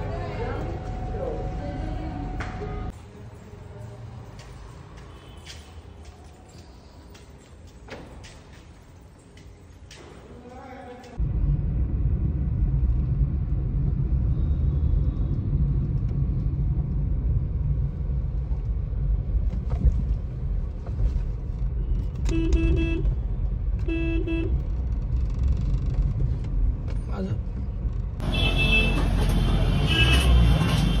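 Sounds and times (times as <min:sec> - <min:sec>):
engine and road rumble in car: 0:11.2 - 0:28.3
vehicle horn honks: 0:22.3 - 0:23.1, 0:23.9 - 0:24.5, 0:28.2 - 0:31.0.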